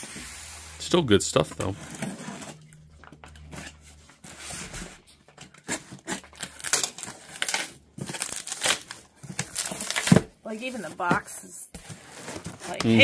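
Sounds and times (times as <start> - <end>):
box cutter slicing tape: 5.5 - 10.2
tape ripping: 5.6 - 10.3
cardboard flaps rustling: 7.4 - 13.0.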